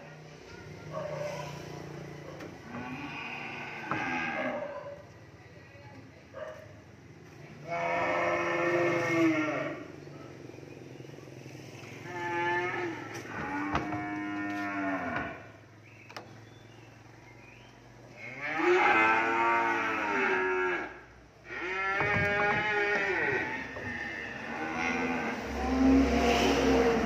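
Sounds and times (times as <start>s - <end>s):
cattle mooing: 2.6s - 4.8s, 7.6s - 9.9s, 11.8s - 15.6s, 18.1s - 27.0s.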